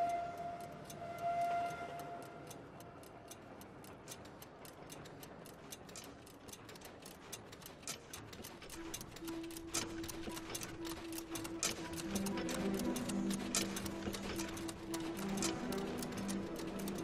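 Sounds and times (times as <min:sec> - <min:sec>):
low steady note: 0:00.0 - 0:03.6, 0:08.8 - 0:17.0
clocks ticking: 0:00.0 - 0:17.0.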